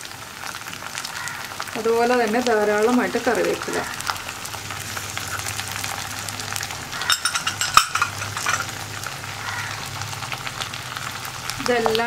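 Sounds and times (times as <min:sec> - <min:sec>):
food sizzling in hot oil: 0:00.0 - 0:12.0
oil spitting: 0:07.0 - 0:08.8.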